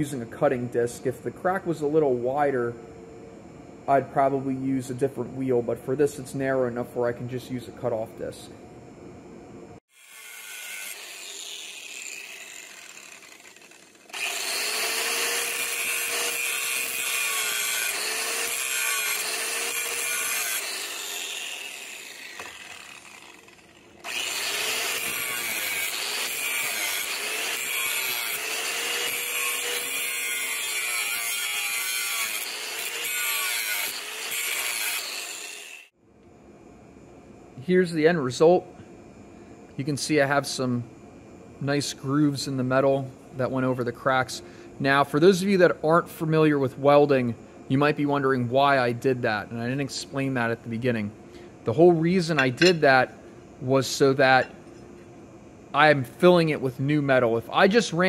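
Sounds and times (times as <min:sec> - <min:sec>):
angle grinder grinding metal: 0:09.9 - 0:35.9, 0:52.2 - 0:53.1.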